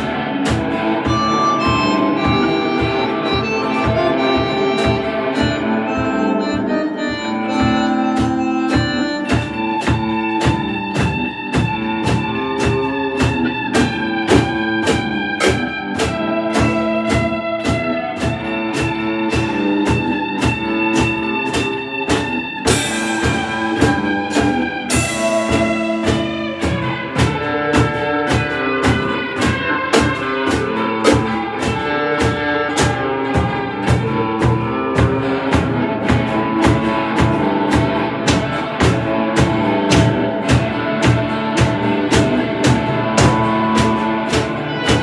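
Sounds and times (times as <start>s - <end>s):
drum kit beat: 0.0s - 45.0s
electric guitars: 0.0s - 45.0s
cymbal crashes: 22.7s - 27.4s.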